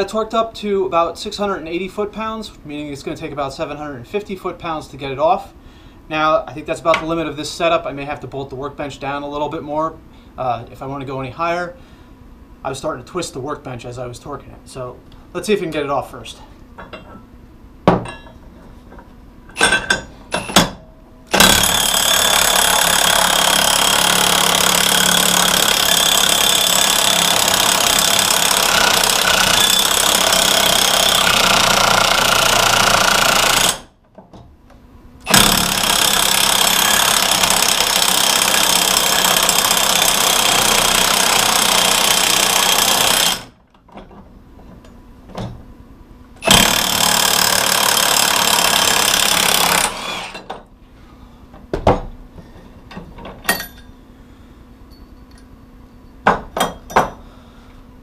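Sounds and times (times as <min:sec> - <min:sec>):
impact wrench hammering: 0:19.5 - 0:33.9, 0:35.3 - 0:43.5, 0:46.4 - 0:50.6, 0:53.5 - 0:53.9, 0:56.2 - 0:57.2.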